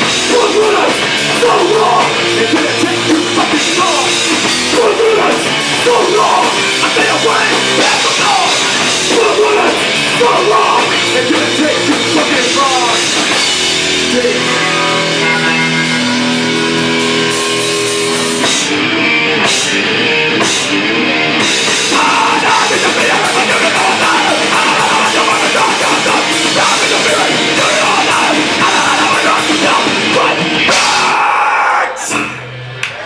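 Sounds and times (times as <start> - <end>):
punk band playing live: 0.0 - 33.0.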